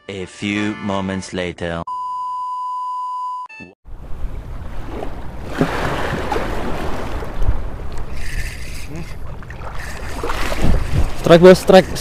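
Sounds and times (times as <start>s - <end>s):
small sea waves washing: 4.6s - 11.4s
wind on microphone: 9.8s - 12.0s.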